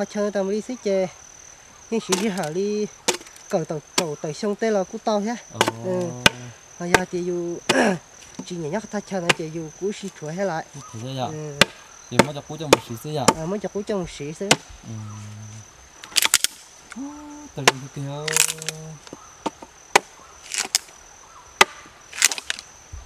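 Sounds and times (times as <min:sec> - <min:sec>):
machete chopping wood: 0:02.1 - 0:03.4, 0:05.6 - 0:07.1, 0:07.7 - 0:07.9, 0:09.2 - 0:09.5, 0:11.6 - 0:13.5, 0:14.5 - 0:14.8, 0:19.4 - 0:20.9, 0:21.6 - 0:22.6.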